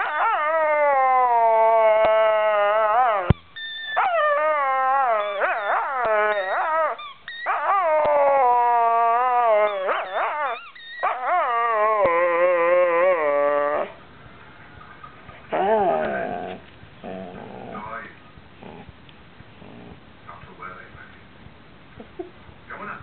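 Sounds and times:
dog howling moans: 0:00.0 - 0:14.0, 0:15.4 - 0:17.9.

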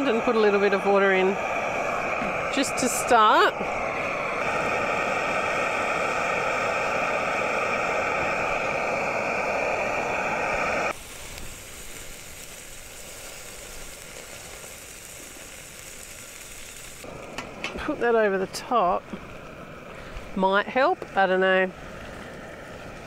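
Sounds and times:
gas burner hissing: 0:00.0 - 0:23.0
dumplings sizzling in a pan: 0:10.9 - 0:17.8.

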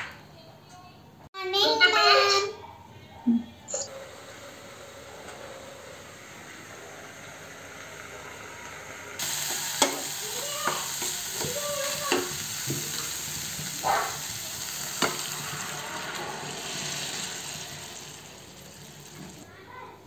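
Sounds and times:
tomatoes sizzling in a pan: 0:04.0 - 0:19.5.

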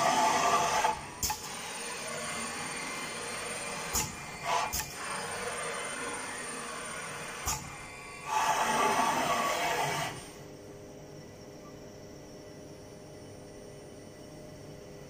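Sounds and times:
glue dispensing machine running: 0:00.0 - 0:10.4.

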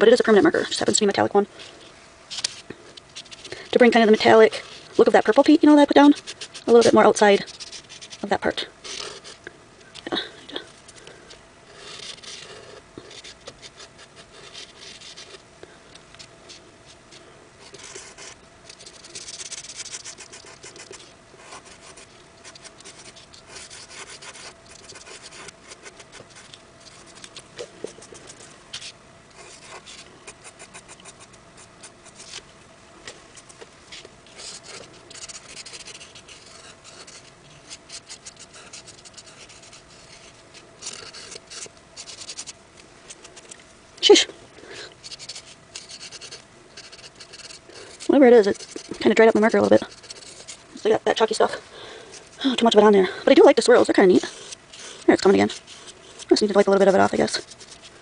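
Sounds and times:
marker scratching on paper: 0:03.2 - 0:09.4, 0:11.7 - 0:15.4, 0:17.6 - 0:32.4, 0:34.3 - 0:42.6, 0:45.0 - 0:51.6, 0:52.5 - 0:57.9.

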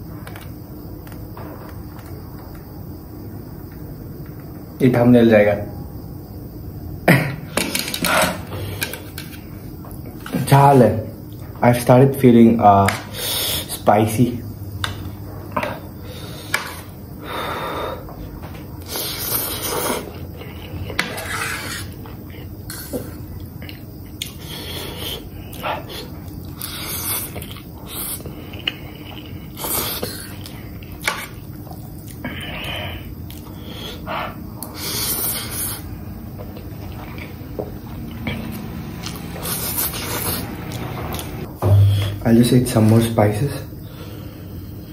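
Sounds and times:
person slurping noodles: 0:21.0 - 0:22.0, 0:39.4 - 0:41.4.

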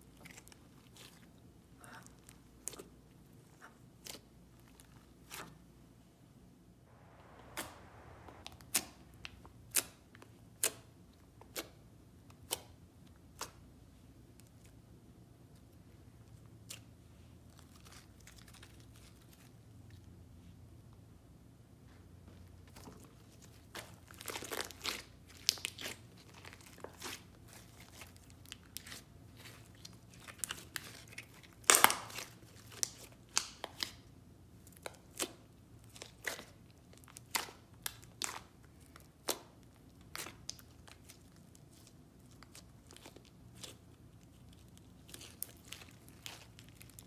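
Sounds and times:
sticky slime pops and crackles: 0:30.3 - 0:34.0.

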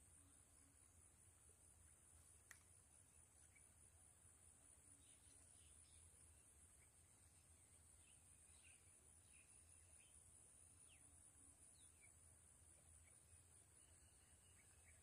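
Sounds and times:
faint high-pitched hiss: 0:00.0 - 0:15.0
bird chirps: 0:04.9 - 0:10.2.

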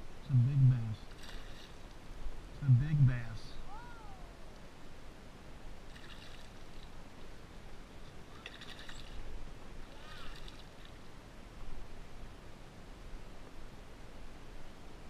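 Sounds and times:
fish splashing at water surface: 0:08.2 - 0:09.3.

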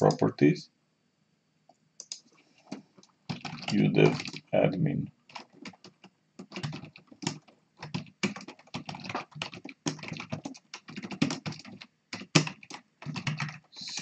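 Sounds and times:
typing on computer keyboard: 0:02.0 - 0:04.5, 0:05.3 - 0:14.0.

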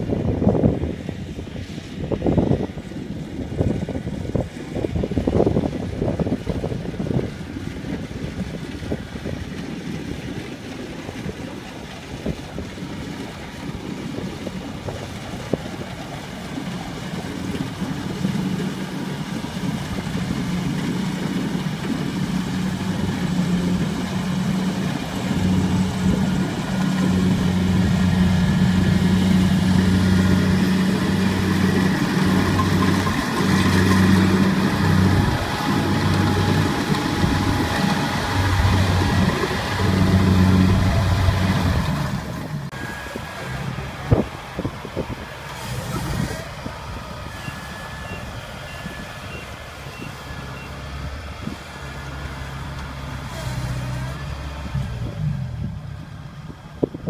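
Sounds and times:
combine harvester engine running: 0:00.0 - 0:57.0
deeper engine tone: 0:00.0 - 0:57.0.

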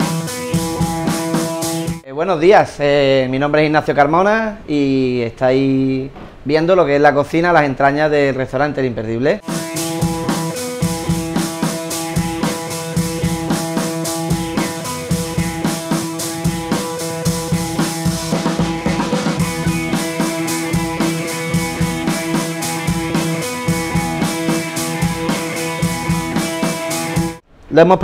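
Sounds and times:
drum kit beat: 0:00.0 - 0:02.0, 0:09.4 - 0:27.4
held notes: 0:00.0 - 0:02.0, 0:09.4 - 0:27.4.

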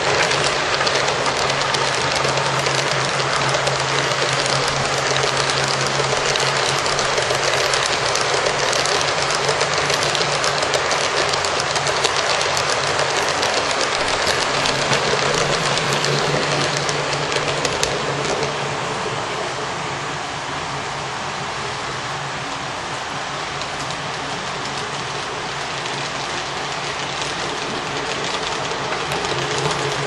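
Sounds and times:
wheels clicking on track: 0:00.0 - 0:19.8, 0:21.6 - 0:30.0
model train cars rolling: 0:00.0 - 0:30.0.

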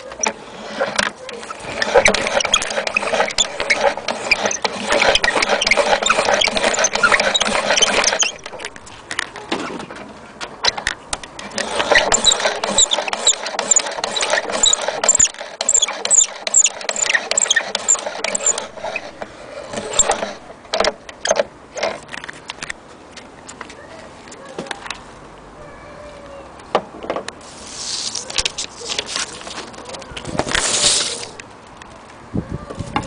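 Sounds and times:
high squeak: 0:00.0 - 0:08.8, 0:11.6 - 0:20.4
gramophone crank winding clicks: 0:00.0 - 0:09.3, 0:10.6 - 0:22.8.

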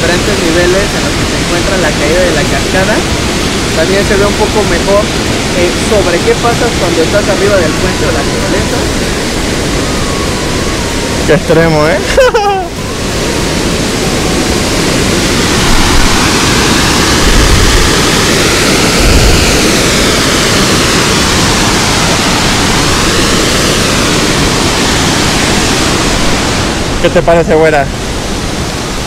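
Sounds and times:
waterfall rushing: 0:00.0 - 0:29.0
low rumbles: 0:12.6 - 0:29.0.

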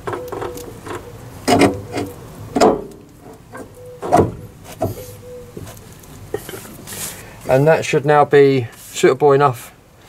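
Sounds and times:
metal knocks and scrapes: 0:00.0 - 0:05.0
loud metal clunks: 0:02.5 - 0:03.0, 0:04.0 - 0:05.0.

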